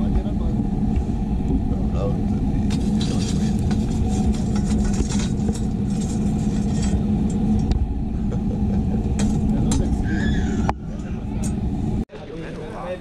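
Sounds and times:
motor rumbling hum: 0:00.0 - 0:12.0
coals raked under wire grill: 0:02.6 - 0:07.7.

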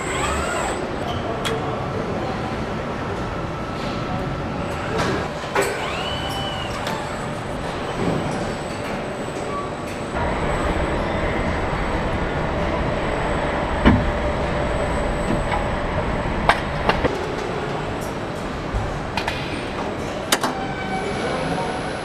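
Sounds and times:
machine hum: 0:00.0 - 0:01.0, 0:10.0 - 0:19.2
steady machinery noise: 0:00.0 - 0:01.4, 0:02.0 - 0:20.6.

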